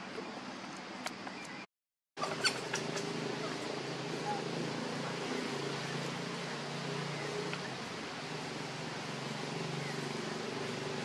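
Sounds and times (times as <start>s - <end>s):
outdoor background hum: 0.0s - 11.0s
constant hiss: 2.2s - 11.0s.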